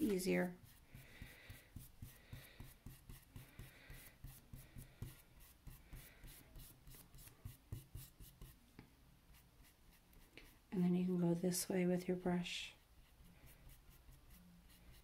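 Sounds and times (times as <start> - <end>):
paintbrush scrubbing canvas: 0.0 - 8.6, 12.7 - 15.0.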